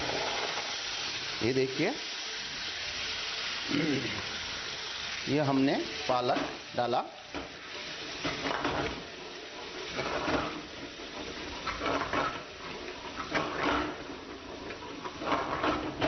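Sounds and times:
metal ladle scraping a pan: 8.0 - 16.0.

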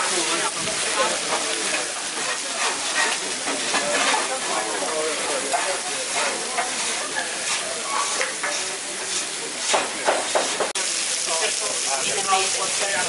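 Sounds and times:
food sizzling on a griddle: 0.0 - 13.0
metal spatula scraping: 1.2 - 10.6.

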